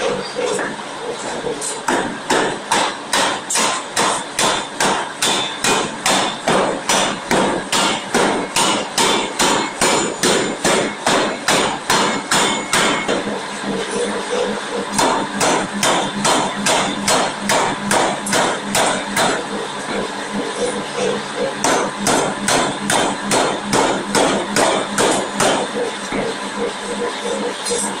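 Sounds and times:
forging hammer striking steel: 0:01.7 - 0:13.8, 0:14.9 - 0:20.0, 0:21.6 - 0:26.3.

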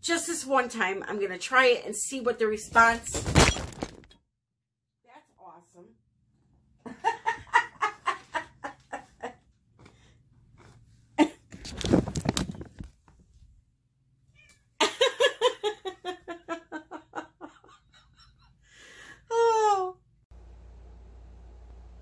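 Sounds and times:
woman laughing: 0:06.8 - 0:09.4, 0:11.2 - 0:11.5, 0:14.8 - 0:18.6, 0:19.2 - 0:20.0.

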